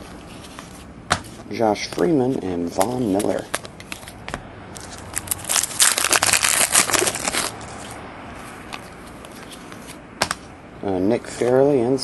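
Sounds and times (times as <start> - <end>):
cards clicking: 2.7 - 7.5
plastic wrapper crinkling: 4.8 - 7.9.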